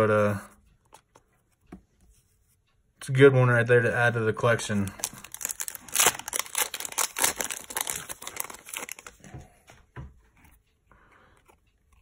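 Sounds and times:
cards rustling: 4.5 - 9.5
foil wrapper crinkling and tearing: 4.8 - 9.2.

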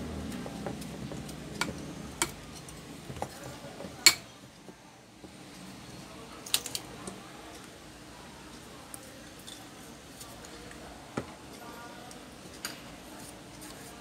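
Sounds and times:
fan parts clicking together: 6.4 - 7.2.

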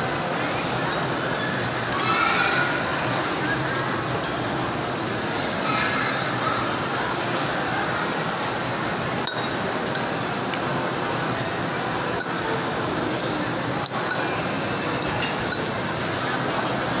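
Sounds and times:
metal spoon clinking against bowl: 9.2 - 10.2, 12.2 - 12.5, 13.2 - 15.9.

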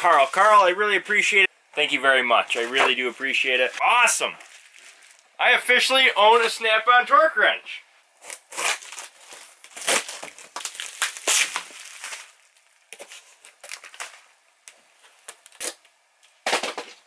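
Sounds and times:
bubble wrap crinkling: 0.0 - 0.8, 2.4 - 5.4, 8.2 - 15.9
cardboard box being cut and torn: 8.2 - 10.5.

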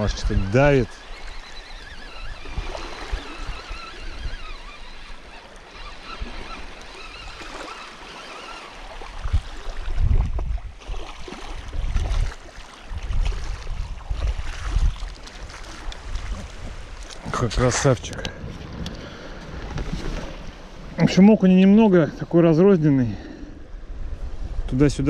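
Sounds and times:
wind buffeting microphone: 0.0 - 5.2, 8.8 - 21.1, 23.2 - 25.0
small waves lapping: 0.0 - 21.2.

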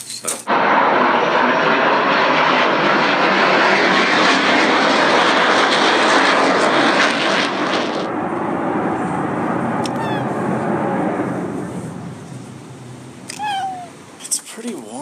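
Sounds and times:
jet aircraft engine roar: 0.0 - 15.0.

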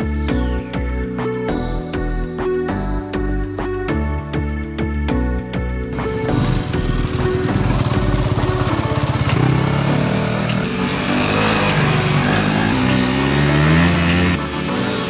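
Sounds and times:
dirt bike engine revving: 5.9 - 15.0.

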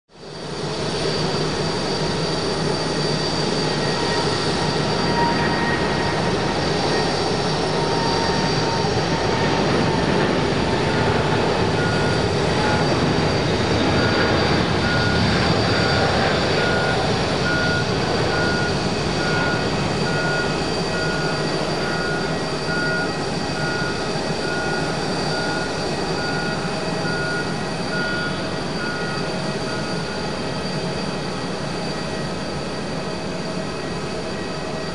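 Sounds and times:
jet engine whine: 0.1 - 34.9
jet engines roaring: 0.2 - 34.9.

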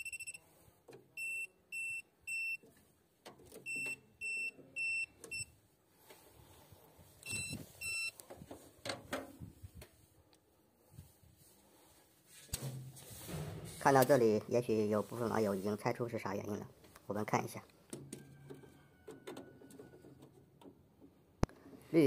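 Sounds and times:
short electronic beeps: 0.0 - 0.4, 7.2 - 8.2.

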